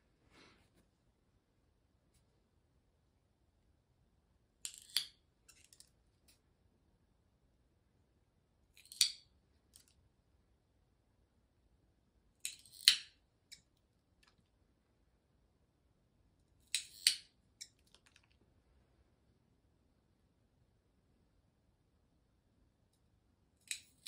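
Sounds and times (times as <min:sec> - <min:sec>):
nail clipper snipping claws: 0:08.8 - 0:09.2, 0:12.4 - 0:13.6, 0:16.6 - 0:17.8.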